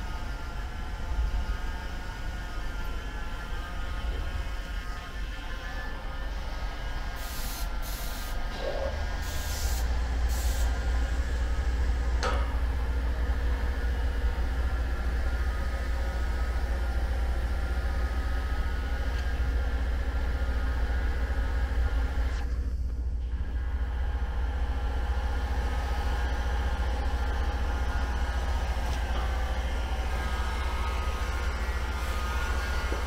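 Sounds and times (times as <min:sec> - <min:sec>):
low machine rumble: 0:00.0 - 0:33.0
compressed air hisses: 0:07.2 - 0:08.4, 0:09.2 - 0:10.8.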